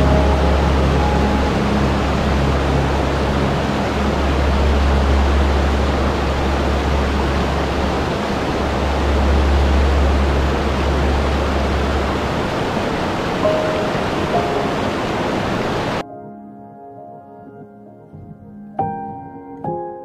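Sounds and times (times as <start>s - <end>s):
deep low rumble: 0.0s - 14.5s
waterfall rushing over rocks: 0.0s - 16.0s.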